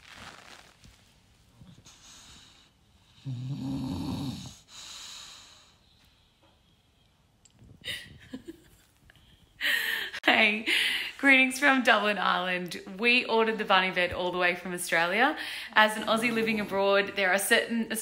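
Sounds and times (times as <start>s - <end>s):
dog snoring: 1.9s - 5.1s.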